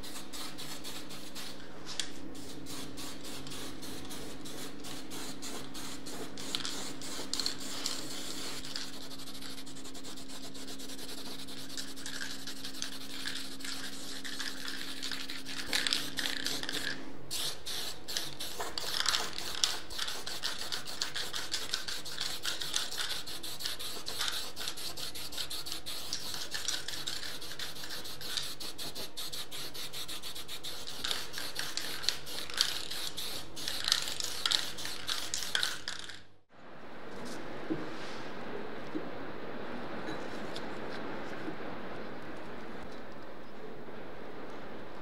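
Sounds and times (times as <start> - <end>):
spray paint can hissing: 2.4 - 36.2.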